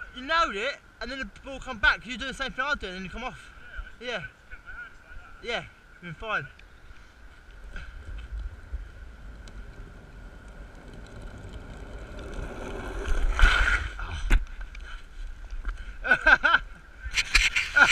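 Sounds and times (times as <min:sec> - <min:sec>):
wheels squealing: 0:07.2 - 0:14.0
longboard wheels rolling on wet tarmac: 0:07.5 - 0:14.0.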